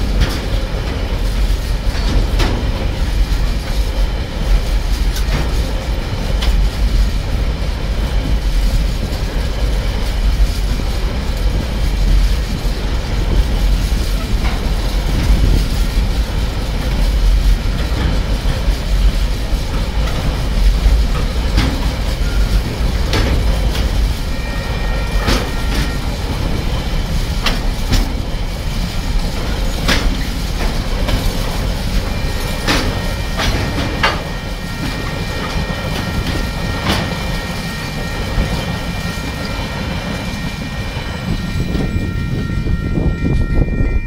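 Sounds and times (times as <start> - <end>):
wheels clacking over rail joints: 0.0 - 42.1
high ringing tone: 24.2 - 27.2, 31.7 - 44.0.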